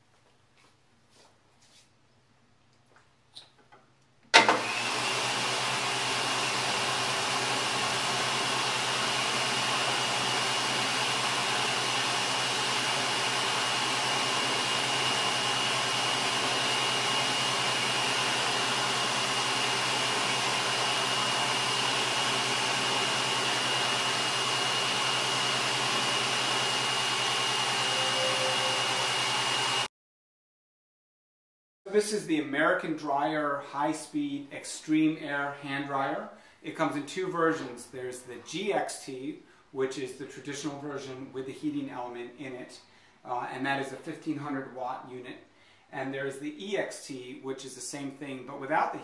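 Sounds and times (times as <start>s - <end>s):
hand dryer blowing air: 4.4s - 29.9s
motor whine: 16.3s - 29.9s.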